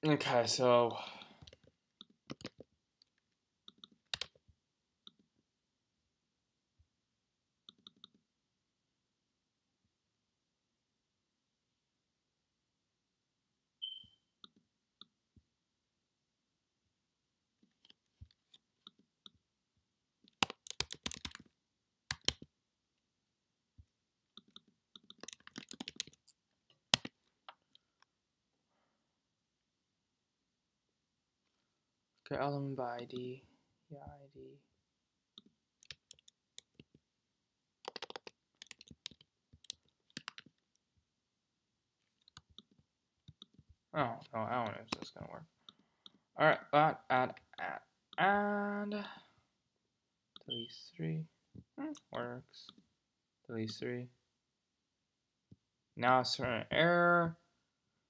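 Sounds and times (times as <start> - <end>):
keyboard and mouse clicks: 1.4 - 4.4, 7.7 - 8.2, 20.2 - 21.5, 22.1 - 22.5, 24.3 - 27.8, 35.4 - 37.0, 37.8 - 40.8, 42.1 - 43.7, 44.6 - 46.2.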